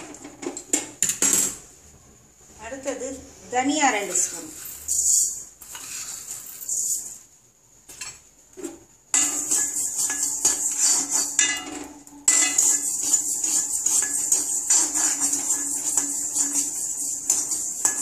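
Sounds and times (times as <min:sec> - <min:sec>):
spoon scraping seeds in pan: 0:03.8 - 0:07.2, 0:09.1 - 0:18.0.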